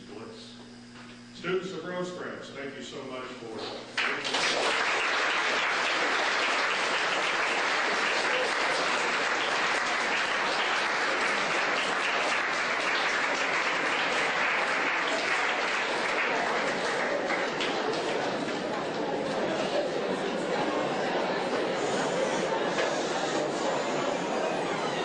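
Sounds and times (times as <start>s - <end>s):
audience applauding: 4.0s - 25.0s.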